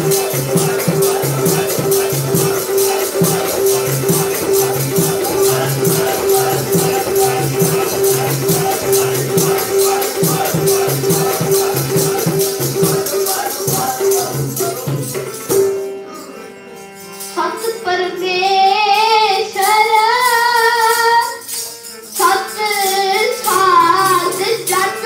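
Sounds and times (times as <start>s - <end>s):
tabla: 0.0s - 16.0s
harmonium: 0.0s - 25.0s
child singing: 17.4s - 21.4s, 22.2s - 25.0s.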